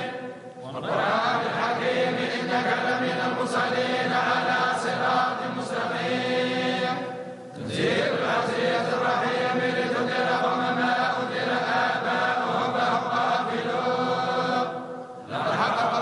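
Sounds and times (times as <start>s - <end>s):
group chanting in unison: 0.0s - 16.0s.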